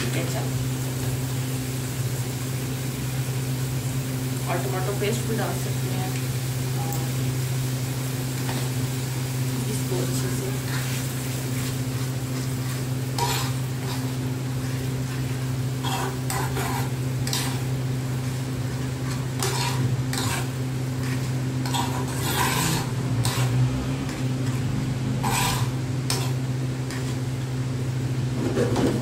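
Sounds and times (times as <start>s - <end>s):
steady low hum: 0.0s - 28.6s
metal spoon scraping frying pan: 9.9s - 27.3s.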